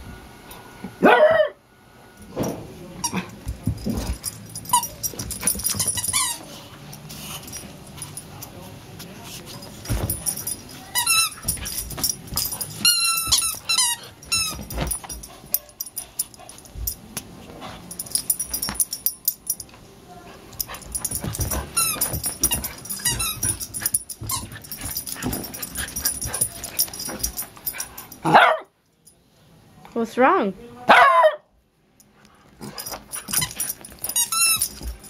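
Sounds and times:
paws thumping and scuffling: 3.3 - 19.7, 20.3 - 28.4, 32.4 - 35.0
puppy high wavering squeaks: 33.4 - 34.8.

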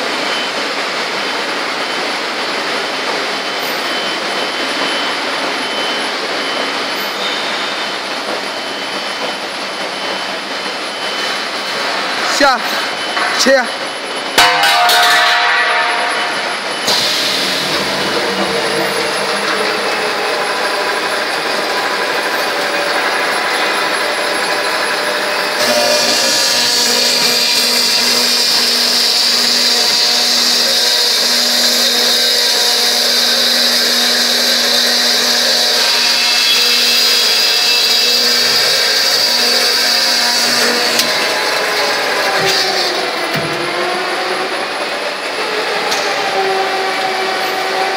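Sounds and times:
high steady whine: 0.0 - 31.9
steady mill noise: 0.0 - 47.9
circular saw cutting steel tube: 2.7 - 47.9.

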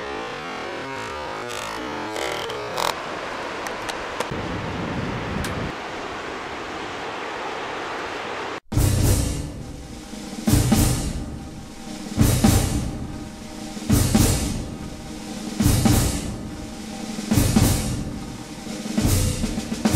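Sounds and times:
wind and surf hiss: 2.1 - 19.8
music with slow heavy drum beat: 8.8 - 19.9.

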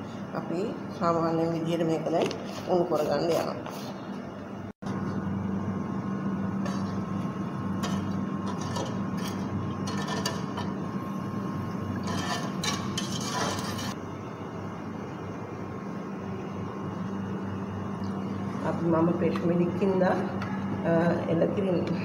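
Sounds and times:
metal spoon stirring in pot: 6.6 - 14.0
spoon scraping and clinking pot: 7.8 - 10.8, 11.9 - 14.0.

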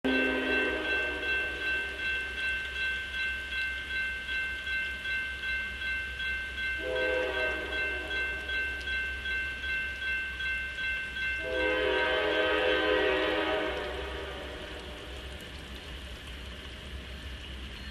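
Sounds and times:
railroad crossing bell ringing: 0.0 - 14.7
locomotive horn blast: 0.1 - 1.3, 6.8 - 8.2, 11.4 - 14.7.

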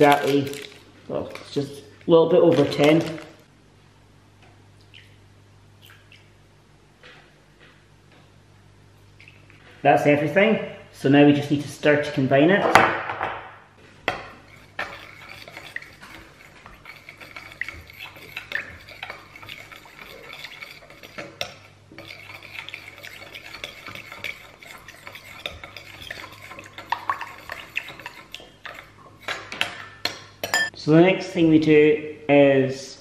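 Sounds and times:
metal spoon clinking glass bowl: 30.4 - 30.7.

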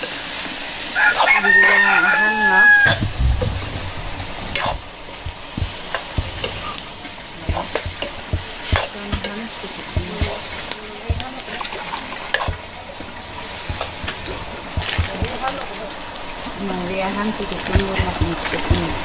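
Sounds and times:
food sizzling in a wok: 0.0 - 19.0
rooster crowing: 0.9 - 3.2.

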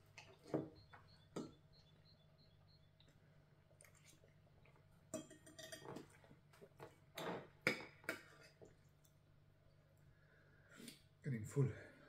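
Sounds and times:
cutlery clinking on plates: 5.1 - 6.2.

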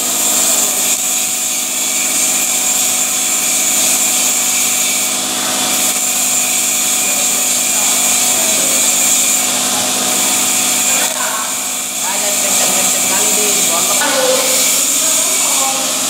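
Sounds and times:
welding arc crackling and hissing: 0.0 - 16.0.

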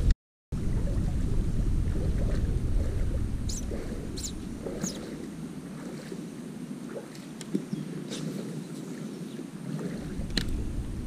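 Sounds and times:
small bird chirping: 3.5 - 5.1.

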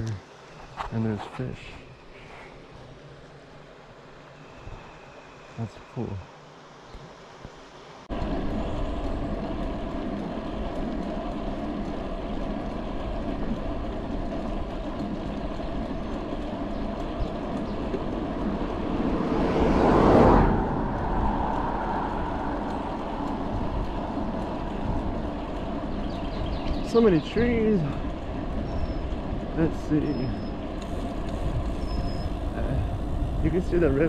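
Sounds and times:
bike tyres on asphalt: 0.0 - 5.6, 6.8 - 34.0
wind rush on microphone: 8.1 - 34.0
loud rushing swell: 18.4 - 25.0.

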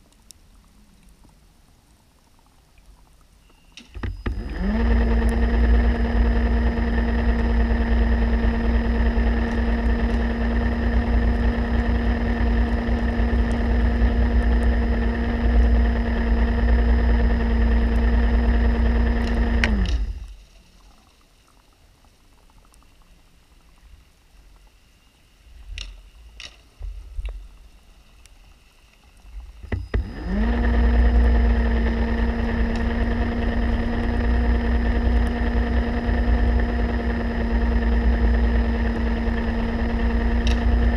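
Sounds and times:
faint clicks: 0.0 - 4.6, 19.2 - 30.1
underwater scooter motor humming: 0.0 - 40.9.

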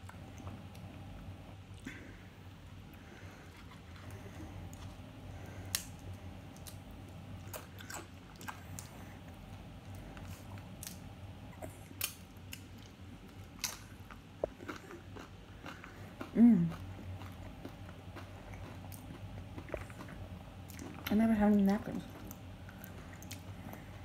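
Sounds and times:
low steady hum: 0.0 - 24.0
person chewing: 1.7 - 21.1, 22.2 - 24.0.

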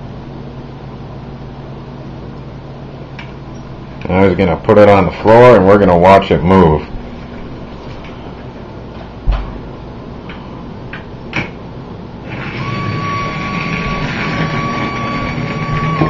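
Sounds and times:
small electric fan motor whining: 12.2 - 16.0.

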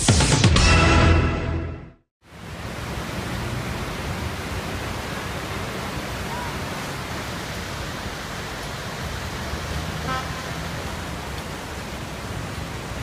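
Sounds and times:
river rushing: 2.2 - 13.0
vehicle horn toot: 10.0 - 10.6.

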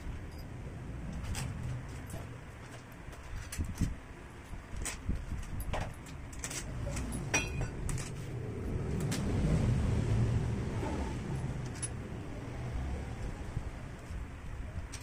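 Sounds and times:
low rumble: 6.5 - 15.0
metal clink ringing: 6.9 - 8.1.

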